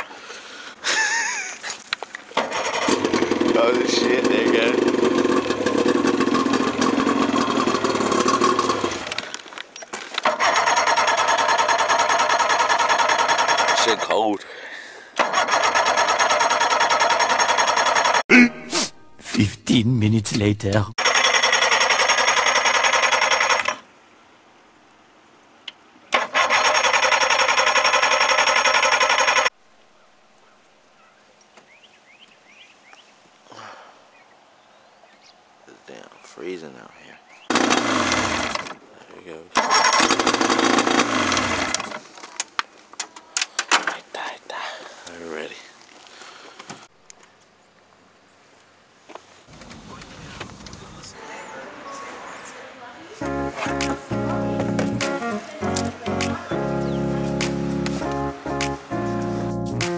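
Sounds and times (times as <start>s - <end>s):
outboard motor running: 2.4s - 9.2s, 37.5s - 38.7s.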